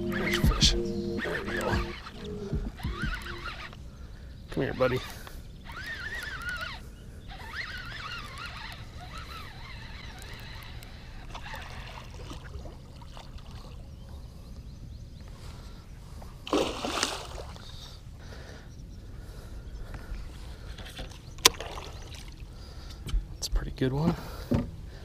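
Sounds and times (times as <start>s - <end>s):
fish thrashing and splashing: 5.6s - 13.8s, 16.5s - 17.8s, 21.4s - 22.5s.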